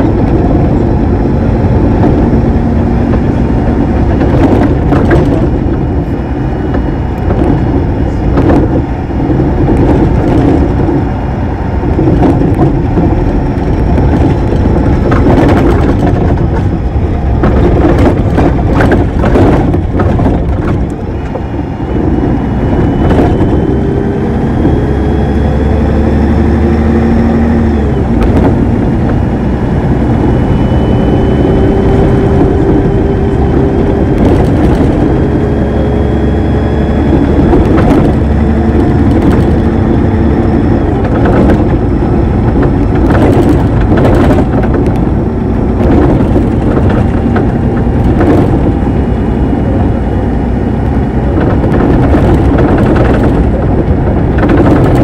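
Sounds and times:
diesel engine and gearbox running: 0.0 - 55.0
gearbox whine: 0.0 - 55.0
rattles and knocks: 3.1 - 6.1, 12.0 - 21.4, 37.0 - 45.2, 51.4 - 55.0.

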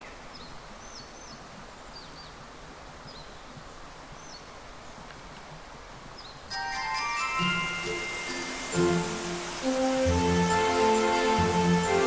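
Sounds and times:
running water rushing: 6.5 - 12.0.

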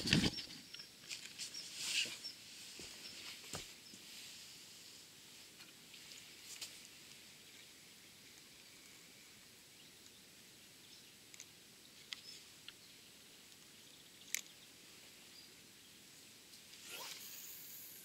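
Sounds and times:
thin high hiss: 16.8 - 18.0.

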